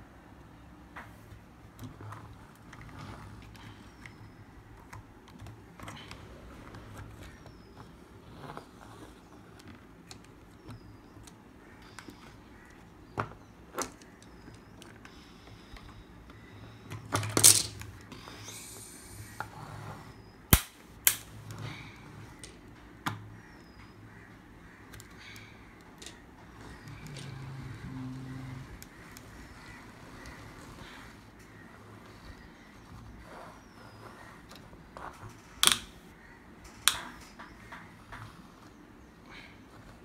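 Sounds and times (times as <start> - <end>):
plastic toys clattering on wood: 17.0 - 17.9.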